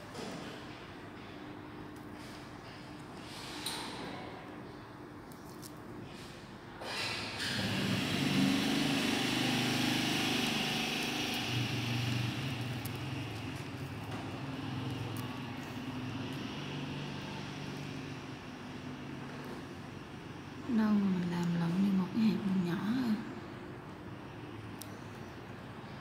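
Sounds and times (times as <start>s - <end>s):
road noise: 7.6s - 26.0s
vehicle engine hum: 7.7s - 20.5s.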